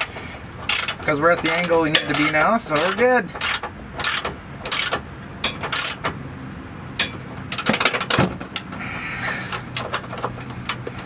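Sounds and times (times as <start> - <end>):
ratchet wrench clicking: 0.0 - 6.1.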